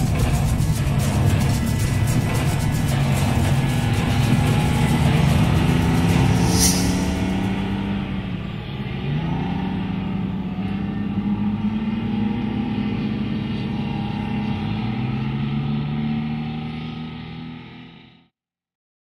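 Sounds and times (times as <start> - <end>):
diesel engine running: 0.0 - 13.3.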